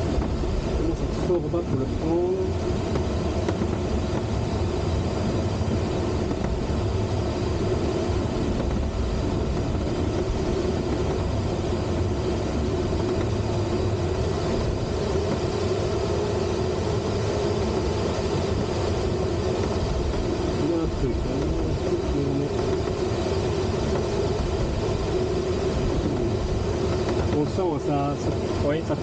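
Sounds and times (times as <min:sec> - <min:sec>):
air rushing over glider: 0:00.0 - 0:29.0.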